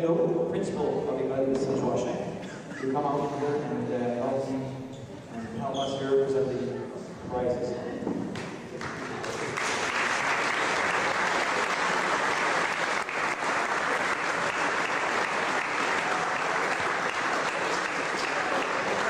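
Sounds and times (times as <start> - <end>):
crowd applauding: 8.4 - 19.0.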